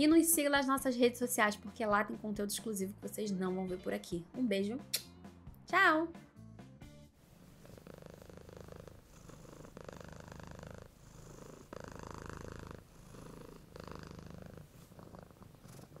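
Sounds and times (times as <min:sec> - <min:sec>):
cat purring: 0:07.4 - 0:16.0.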